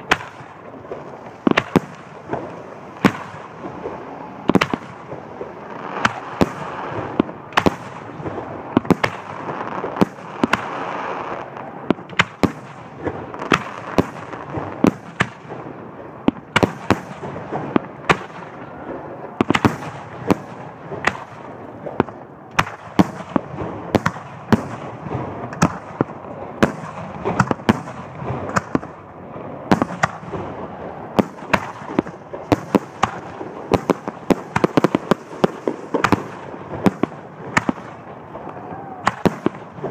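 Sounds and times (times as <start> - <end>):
continuous noisy background: 0.0 - 39.9
firework shells bursting: 31.2 - 38.2.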